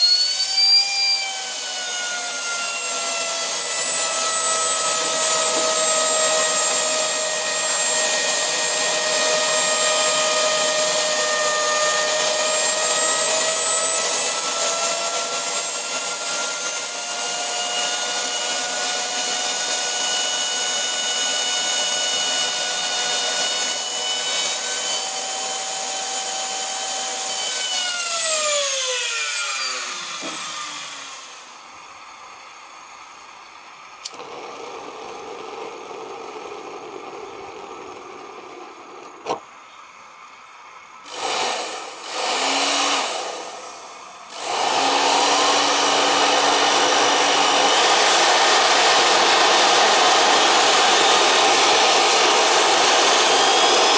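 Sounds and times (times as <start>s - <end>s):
small jet engine whining: 0.0s - 31.6s, 48.6s - 53.9s.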